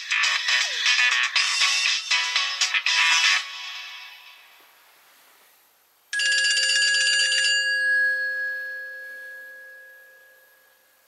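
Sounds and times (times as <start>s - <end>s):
bell-like phone ringtone: 6.2s - 11.0s.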